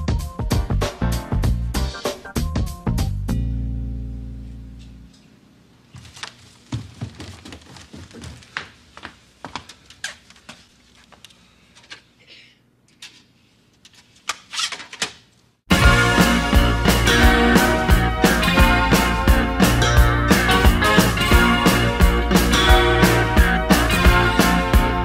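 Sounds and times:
footsteps in a room: 4.5 - 12.2.

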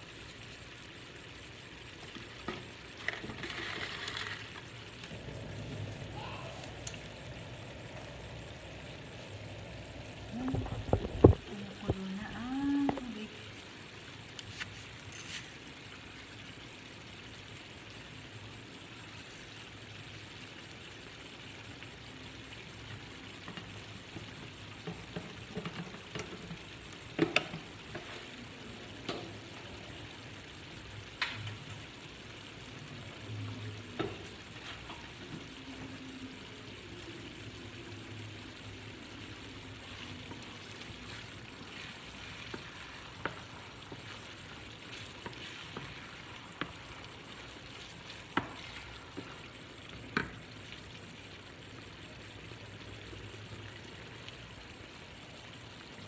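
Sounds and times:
meat sizzling in a frying pan: 0.0 - 56.0
wooden spoon stirring: 2.0 - 4.7, 23.4 - 29.2, 34.0 - 35.8, 39.3 - 50.9.

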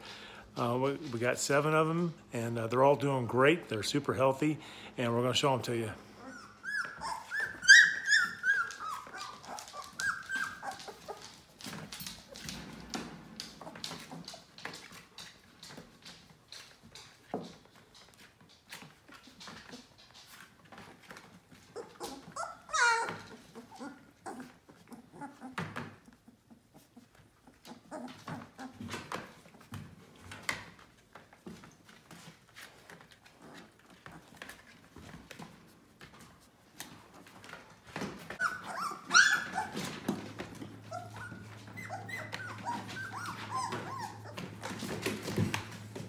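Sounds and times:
puppies squeaking and whimpering: 6.0 - 12.5, 21.4 - 29.6, 37.1 - 45.9
paws scratching on blanket: 6.2 - 12.7, 13.4 - 46.0
puppy loud high squeal: 6.3 - 9.3, 38.4 - 39.8.

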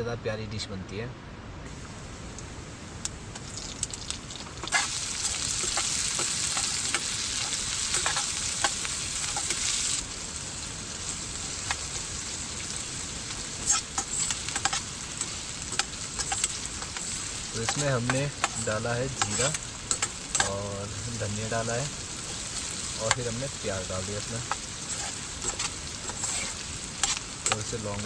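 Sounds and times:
food sizzling in hot oil: 1.7 - 28.0
stirring clicks: 13.6 - 20.6.

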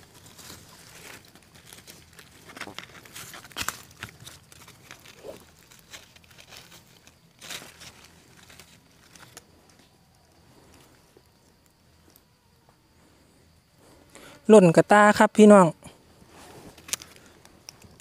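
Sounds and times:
dry leaves rustling and crackling: 0.0 - 9.9.

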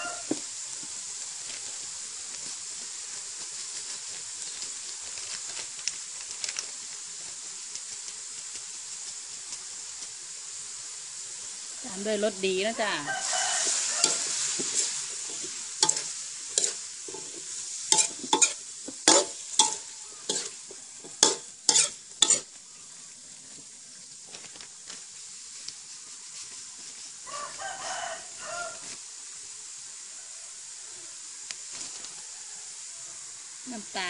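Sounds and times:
food sizzling: 0.0 - 34.0
metal ladle clanking on wok: 15.3 - 17.4, 18.0 - 22.4.

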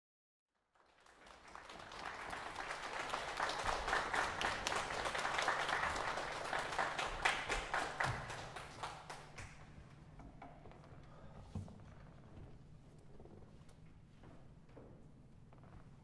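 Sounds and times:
audience applause: 0.7 - 9.6.

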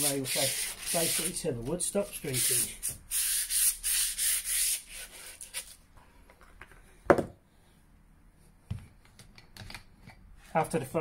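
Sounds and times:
sandpaper rubbing on wood: 0.0 - 1.4, 2.1 - 5.7.

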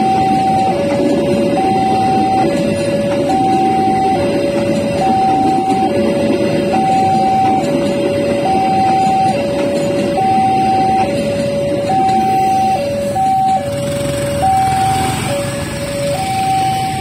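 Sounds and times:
train rumbling past: 0.0 - 17.0
two-tone crossing alarm: 0.0 - 17.0
motorbike engines pulling away: 13.6 - 17.0.

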